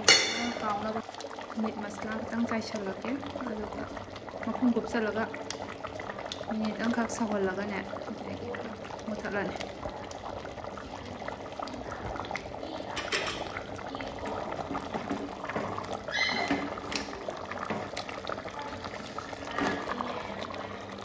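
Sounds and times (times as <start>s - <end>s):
ladle clinking and scraping pot: 0.0s - 0.6s, 12.9s - 13.6s
curry bubbling in a pot: 0.0s - 21.0s.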